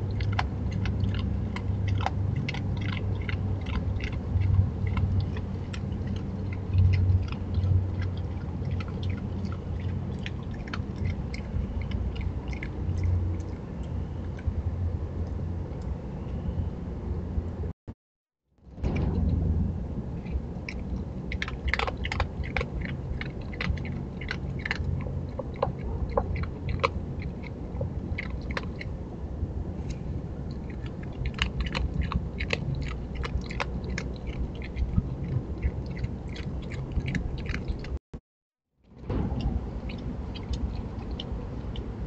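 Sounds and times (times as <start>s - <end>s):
animal crunching dry kibble: 0.0s - 14.5s, 20.2s - 28.9s, 29.8s - 38.0s.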